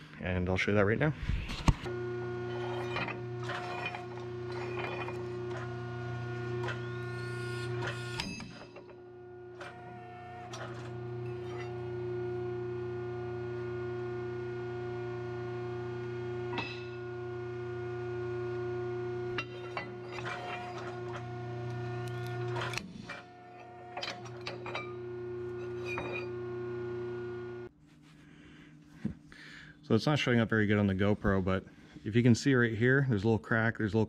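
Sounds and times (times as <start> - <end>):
shop press humming: 1.6 - 27.7.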